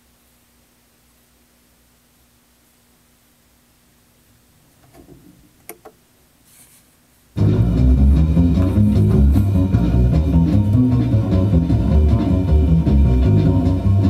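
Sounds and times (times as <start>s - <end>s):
vinyl surface noise: 4.1s - 14.0s
record clicks: 4.8s - 6.0s
jazz record playing: 7.3s - 14.0s.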